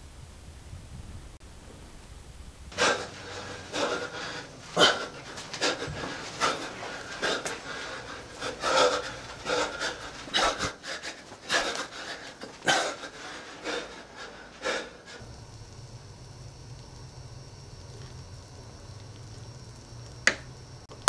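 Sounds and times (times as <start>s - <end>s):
low steady hum: 0.0s - 21.0s
man breathing hard: 2.7s - 15.5s.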